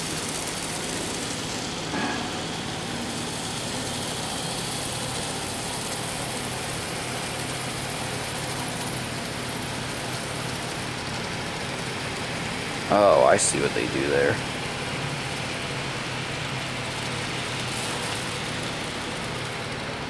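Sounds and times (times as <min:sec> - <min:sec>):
low machine hum: 0:00.0 - 0:20.0
even hiss: 0:12.7 - 0:15.4.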